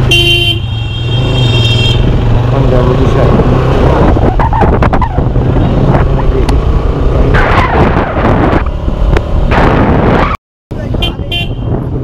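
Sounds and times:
motorcycle engine rumbling: 0.0s - 12.0s
wind noise on microphone: 3.2s - 12.0s.

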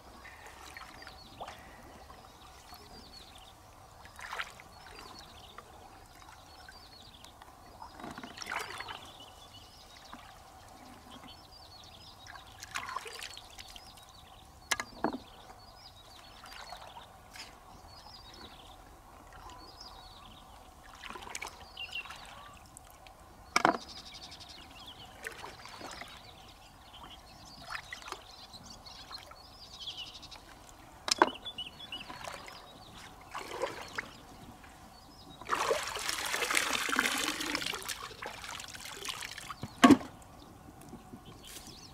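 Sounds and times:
water sloshing and splashing: 0.2s - 6.8s, 7.8s - 9.2s, 12.2s - 13.9s, 16.2s - 17.6s, 20.8s - 23.9s, 25.0s - 26.4s, 30.4s - 40.3s.

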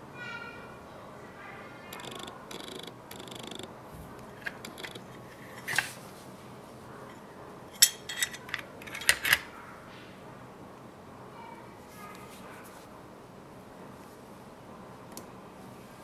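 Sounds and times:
metal and plastic clicking: 1.9s - 6.0s, 7.7s - 9.5s
soft rustling: 3.9s - 7.2s, 11.8s - 13.0s.

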